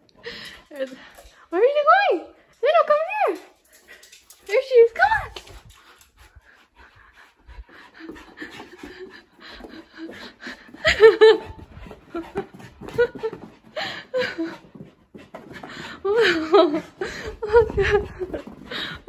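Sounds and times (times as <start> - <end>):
dog panting: 3.6 - 19.0
woman laughing: 8.8 - 14.6, 16.0 - 19.0.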